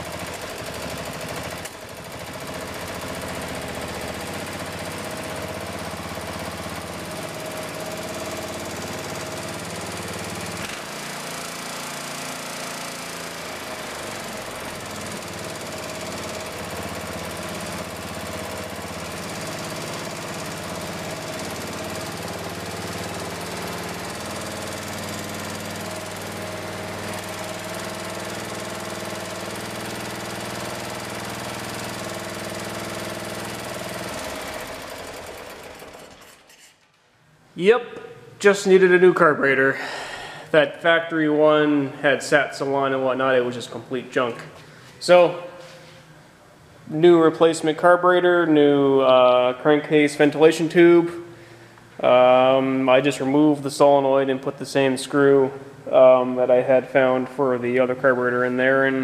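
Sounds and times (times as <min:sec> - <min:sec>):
lawn tractor engine running: 0:00.0 - 0:36.7.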